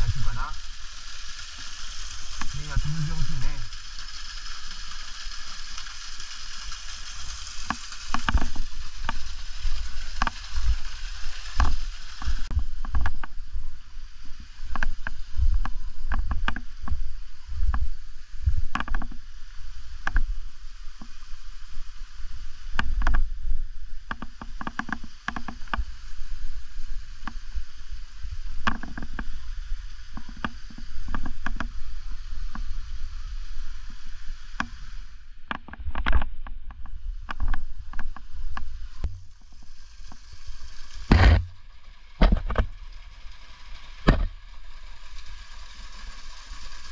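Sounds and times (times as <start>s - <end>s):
steady hiss: 0.0s - 46.9s
camera knocks and crunches: 41.1s - 41.6s, 42.2s - 42.7s, 44.1s - 44.3s.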